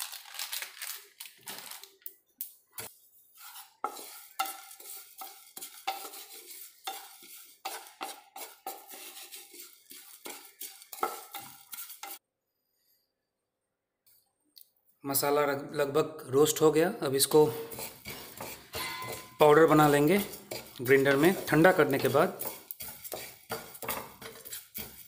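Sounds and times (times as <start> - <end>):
seeds rattling against a pan: 0.0 - 2.0, 3.9 - 12.2, 17.7 - 25.0
spatula scraping a pan: 2.8 - 12.2, 17.2 - 25.0.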